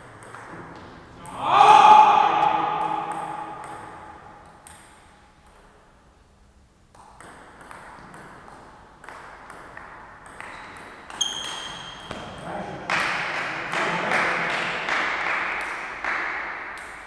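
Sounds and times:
hall noise: 1.2 - 4.4
table tennis balls clicking: 6.9 - 12.0.

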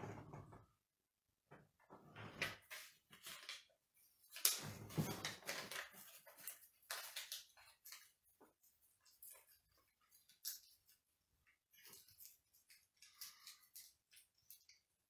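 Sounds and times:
paper crinkling and rustling: 2.4 - 11.0.

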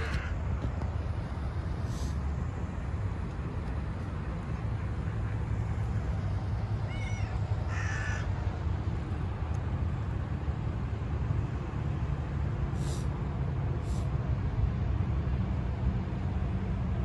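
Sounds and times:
crow calling: 0.0 - 0.4, 6.9 - 8.3.

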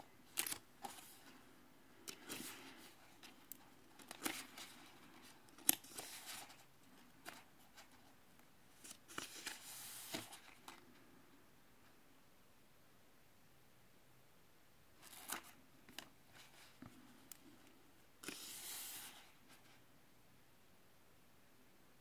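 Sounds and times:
book pages turning: 0.2 - 10.8, 15.0 - 17.0, 18.2 - 19.8.

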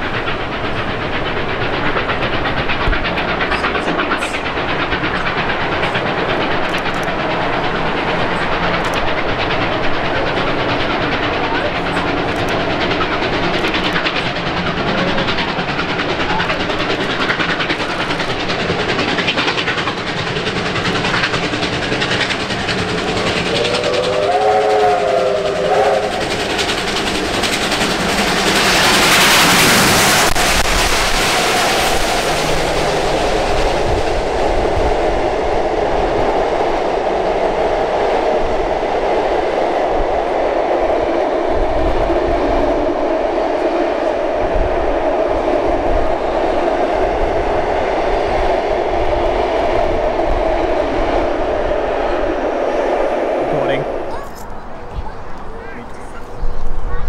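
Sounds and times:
rail noise: 0.0 - 57.0
steam locomotive exhaust chuffing: 0.0 - 57.0
steam whistle: 23.6 - 26.3.

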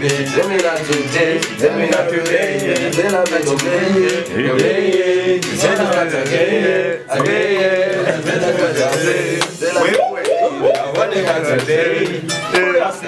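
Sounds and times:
backing beat with hi-hat ticks: 0.0 - 12.7
man rapping into a microphone: 0.1 - 1.6, 2.2 - 4.3.

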